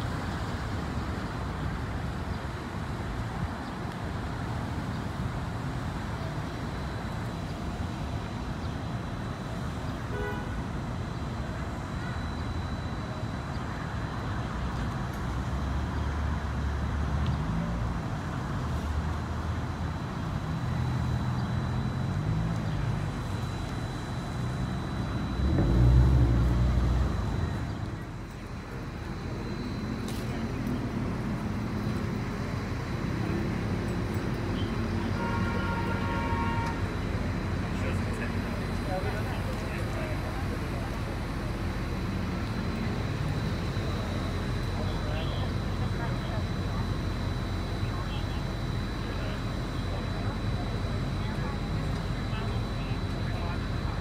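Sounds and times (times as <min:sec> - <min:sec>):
deep vehicle rumble passing: 0:14.5 - 0:35.2
cars driving past: 0:15.3 - 0:47.8.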